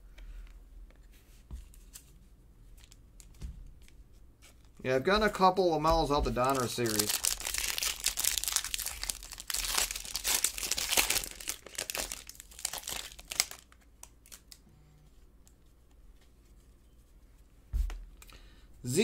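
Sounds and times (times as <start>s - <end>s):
foil wrapper crinkling and tearing: 6.4s - 14.6s.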